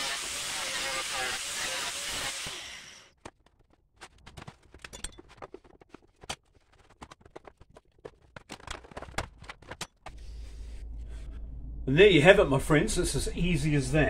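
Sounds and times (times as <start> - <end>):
low hum: 10.1 - 14.0.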